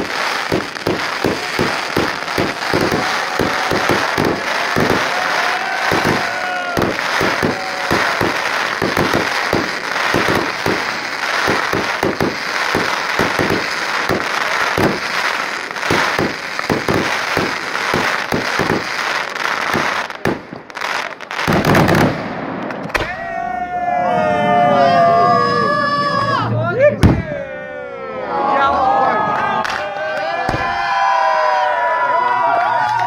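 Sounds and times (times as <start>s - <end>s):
fireworks crackling and popping: 0.0s - 23.2s.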